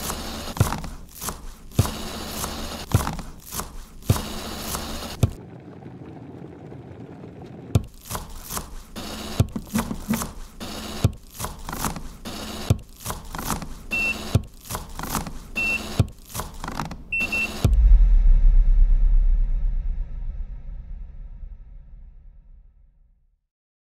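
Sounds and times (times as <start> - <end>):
low motor hum: 5.2 - 8.2.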